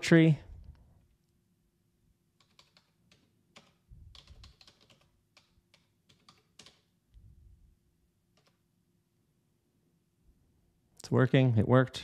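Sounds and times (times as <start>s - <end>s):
typing on a computer keyboard: 2.4s - 6.9s, 8.3s - 8.6s.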